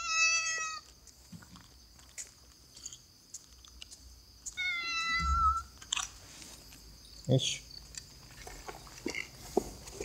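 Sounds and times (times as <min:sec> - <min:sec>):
faint ticks and scuffs: 0:00.4 - 0:10.0
kitten meowing: 0:04.6 - 0:05.7.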